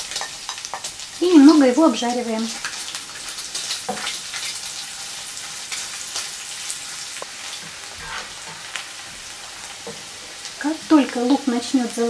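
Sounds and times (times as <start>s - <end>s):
onion and pork sizzling in a pan: 0.0s - 12.0s
spatula stirring and scraping: 2.6s - 10.6s.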